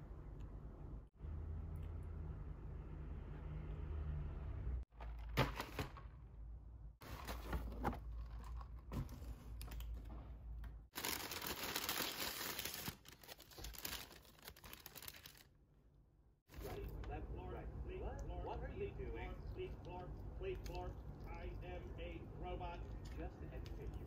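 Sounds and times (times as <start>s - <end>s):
paper and foil crinkling and tearing: 11.0s - 15.5s.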